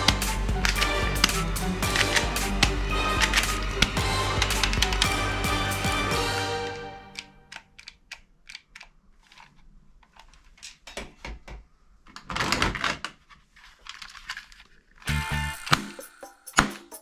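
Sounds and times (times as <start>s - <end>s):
plastic toy guns clattering: 7.2s - 11.5s, 12.1s - 15.8s.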